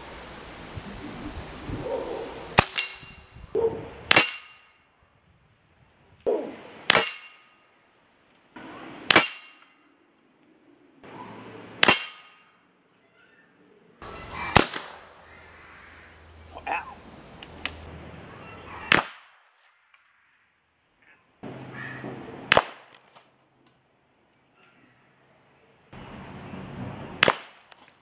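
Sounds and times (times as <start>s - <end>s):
air rifle shots: 2.6s - 3.0s, 14.5s - 15.2s, 18.9s - 19.3s, 22.5s - 22.9s.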